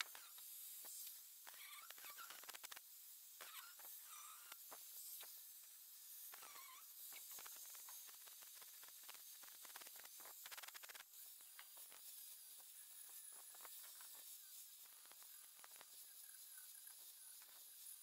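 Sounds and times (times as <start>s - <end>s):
faint hiss: 0.0s - 18.0s.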